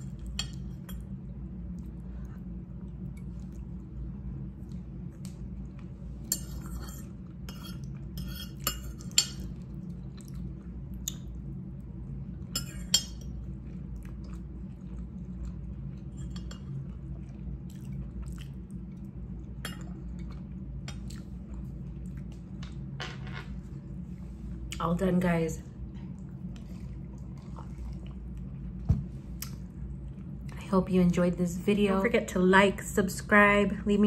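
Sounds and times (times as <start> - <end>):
close-up chewing: 13.4 - 22.4, 26.0 - 28.8.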